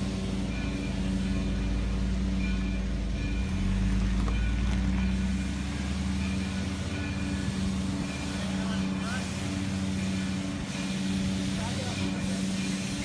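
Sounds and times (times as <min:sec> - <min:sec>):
train coaches rumbling over crossing: 0:00.0 - 0:13.0.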